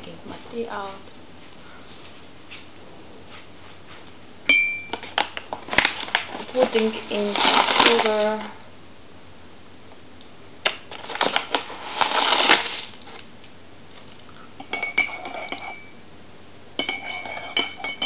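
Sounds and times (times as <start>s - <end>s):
teaspoon stirring in ceramic mug: 14.6s - 15.9s, 16.8s - 18.0s
spoon clinking against mug: 16.8s - 18.0s.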